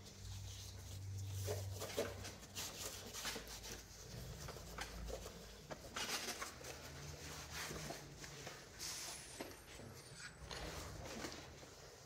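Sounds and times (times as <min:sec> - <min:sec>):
gloved hand rubbing plastic: 0:00.0 - 0:08.7.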